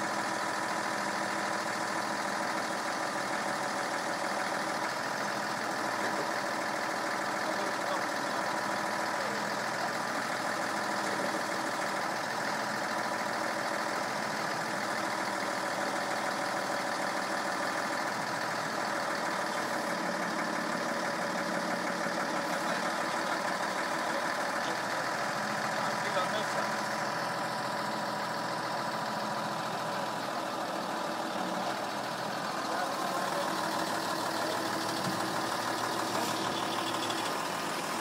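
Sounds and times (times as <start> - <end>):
truck engine running: 0.0 - 38.0
crane hydraulics: 34.7 - 38.0.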